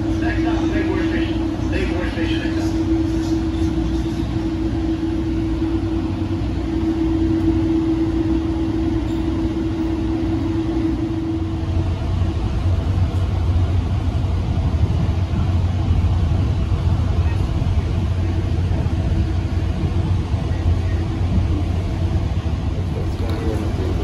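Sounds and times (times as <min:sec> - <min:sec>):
steady hum tone: 0:00.0 - 0:12.7
train running rumble: 0:00.0 - 0:24.0.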